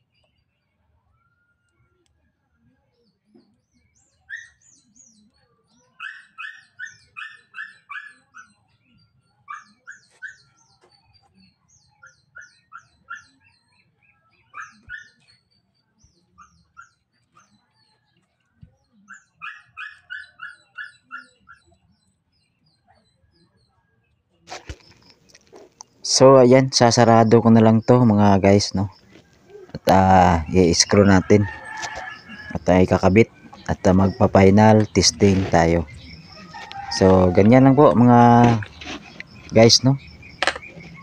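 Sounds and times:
dog barking in high yaps: 6.0 - 8.3.

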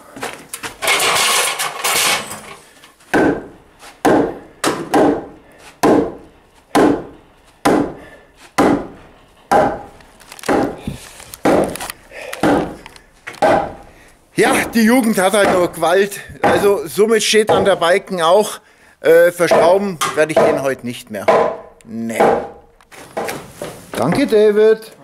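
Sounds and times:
sharp blows on timber: 3.1 - 11.8, 12.4 - 12.8, 13.4 - 14.7, 16.4 - 16.8, 17.5 - 17.9, 19.5 - 22.6
wood scraping against wood: 8.4 - 13.9.

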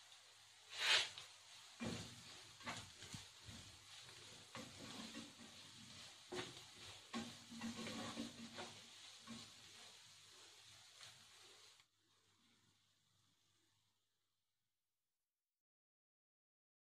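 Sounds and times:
potatoes sizzling in a pan: 0.0 - 14.0
spatula scraping a pan: 0.7 - 11.8.

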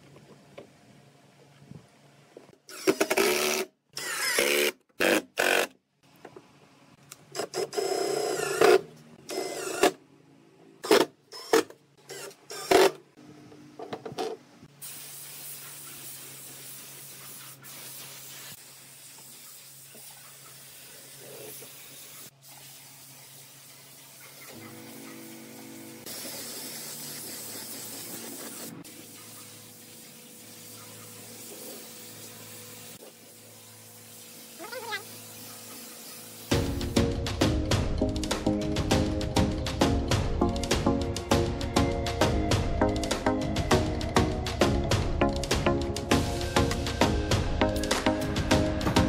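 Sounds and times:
cordless drill driving screws: 2.7 - 5.7, 10.8 - 13.0
steady hiss: 14.7 - 36.6.

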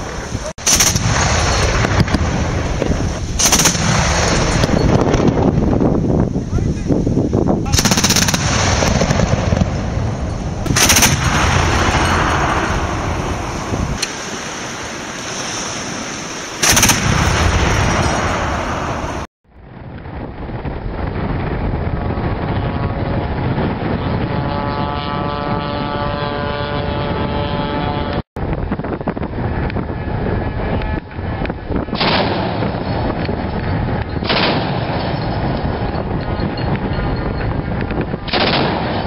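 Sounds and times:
steady rushing noise: 0.0 - 39.0
anti-aircraft cannon firing: 0.6 - 5.7, 7.7 - 14.2, 16.6 - 24.2, 31.8 - 35.7, 38.2 - 39.0.

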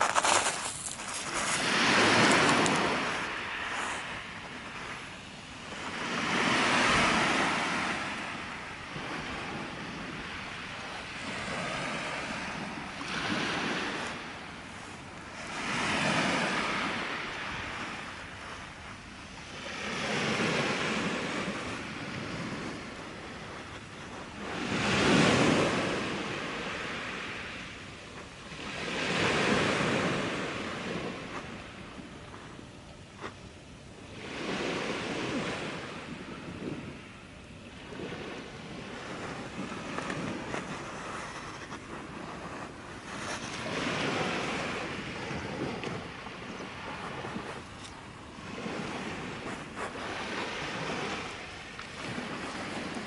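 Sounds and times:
waves washing up pebble beach: 0.0 - 32.4, 37.8 - 47.7, 48.3 - 53.0.

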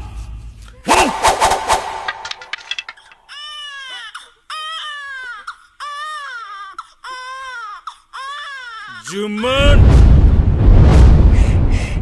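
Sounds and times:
baby crying: 3.2 - 9.1.

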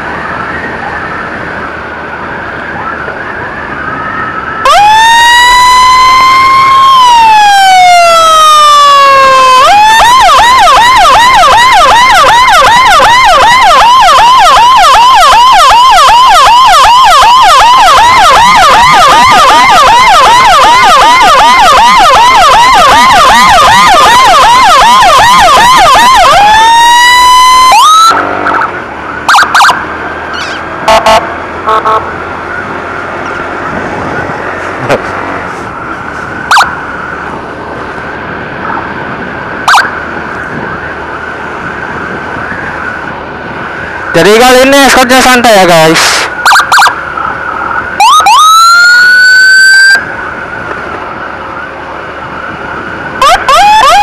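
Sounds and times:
motorcycle engine and road noise: 0.0 - 54.0
electronic emergency siren: 2.2 - 32.0, 36.5 - 36.8, 39.6 - 40.0, 44.1 - 50.2, 53.2 - 54.0
siren blips: 2.7 - 32.0, 39.6 - 40.0, 46.4 - 47.0, 48.0 - 50.1, 53.2 - 54.0.

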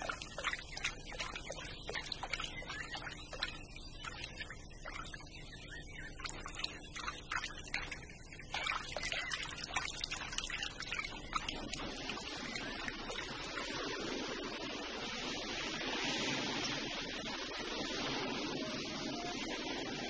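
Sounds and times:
cartoon watery clicks and drips: 0.0 - 13.2
steady hiss: 11.5 - 20.0.

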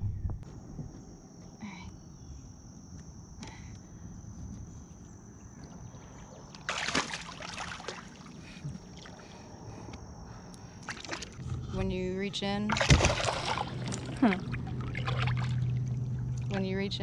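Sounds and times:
fish splashing in water: 6.6 - 9.3, 12.7 - 16.5.

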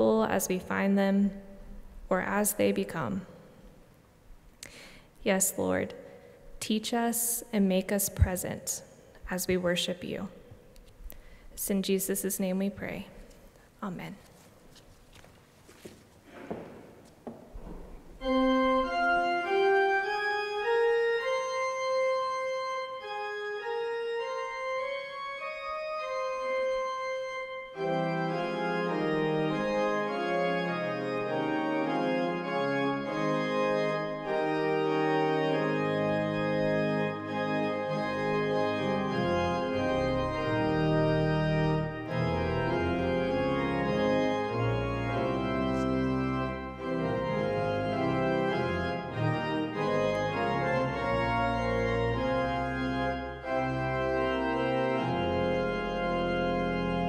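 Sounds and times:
church organ playing: 17.5 - 57.0.

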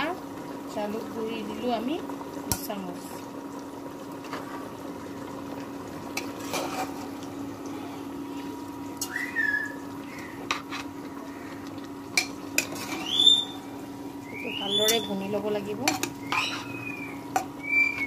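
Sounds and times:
steady hum: 0.0 - 18.0
ladle stirring meat in a pot: 5.6 - 7.5, 10.0 - 18.0
ladle clicks and scrapes on pot: 6.1 - 7.2, 10.4 - 11.0, 11.7 - 13.2, 15.8 - 16.7.

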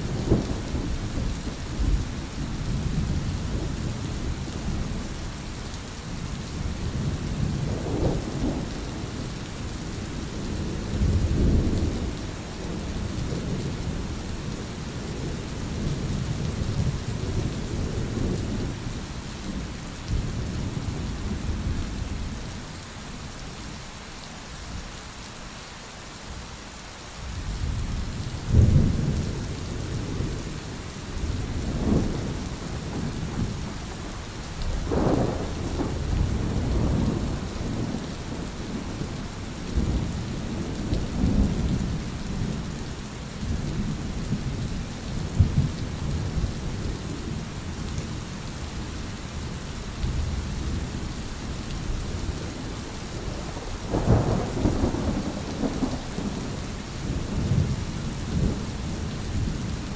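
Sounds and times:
rain hiss: 0.0 - 59.9
rolling thunder: 28.4 - 42.7, 53.1 - 59.9.

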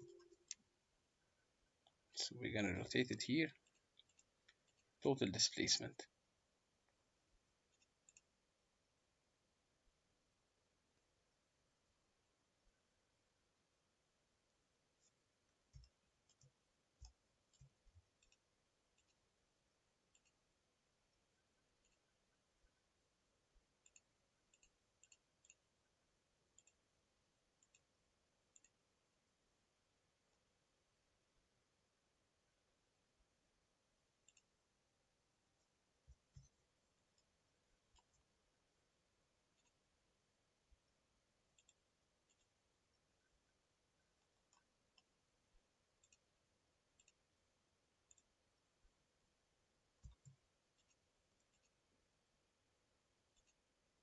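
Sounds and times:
computer mouse clicks: 3.6 - 4.9, 7.7 - 8.3, 15.7 - 19.2, 20.1 - 20.4, 23.8 - 25.6, 26.5 - 26.8, 27.6 - 27.9, 28.5 - 28.8, 34.2 - 34.5, 41.5 - 42.6, 46.0 - 46.3, 46.9 - 47.2, 48.1 - 48.3, 50.0 - 51.8, 53.3 - 53.6.

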